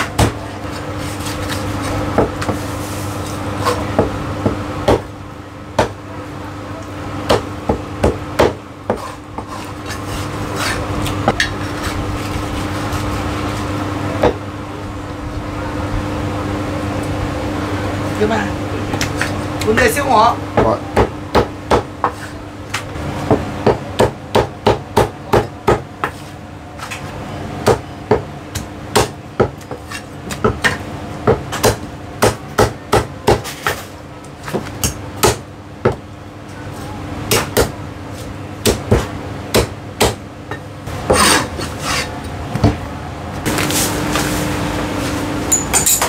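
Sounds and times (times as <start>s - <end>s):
cleaver chopping on wooden block: 27.6s - 29.7s, 30.4s - 33.8s, 38.6s - 40.2s.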